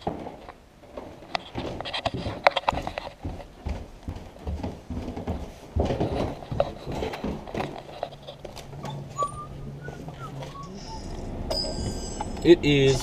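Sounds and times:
footsteps on stairs: 0:00.0 - 0:09.2.

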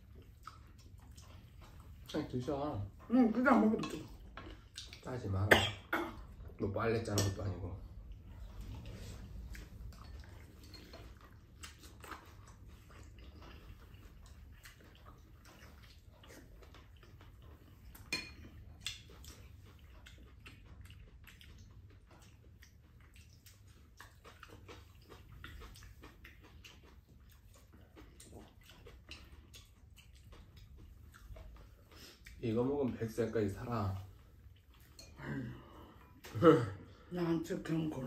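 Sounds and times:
chopsticks and spoons clicking on bowls: 0:03.6 - 0:05.1, 0:06.9 - 0:07.6, 0:18.0 - 0:19.4, 0:34.8 - 0:35.2.

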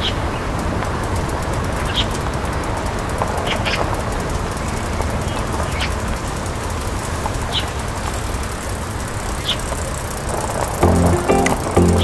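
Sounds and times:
music: 0:10.8 - 0:12.0.

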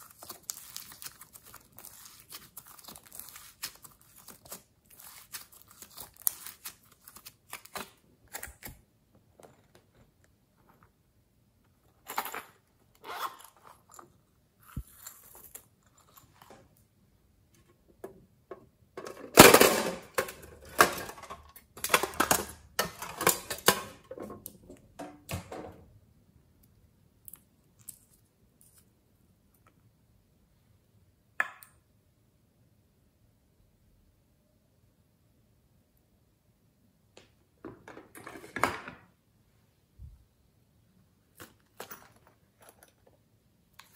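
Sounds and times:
clattering and rustling: 0:37.6 - 0:39.1.

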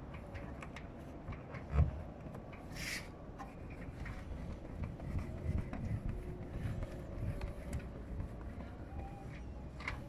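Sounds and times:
hand rubbing tape on roof sheet: 0:00.0 - 0:10.0.

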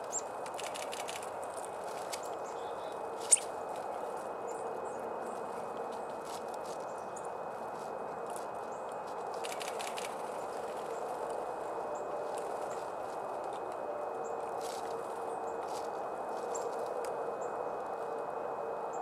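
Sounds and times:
rushing outdoor background: 0:00.0 - 0:19.0
birds pecking on wood: 0:00.4 - 0:04.3, 0:05.3 - 0:13.7.

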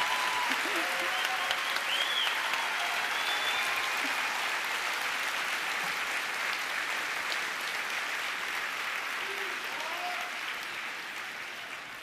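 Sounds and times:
large audience applauding: 0:00.0 - 0:12.0.

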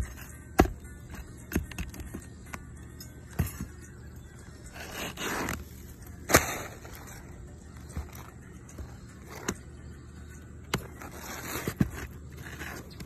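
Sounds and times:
shingle scraping and rustling: 0:04.7 - 0:09.6, 0:10.7 - 0:13.0.

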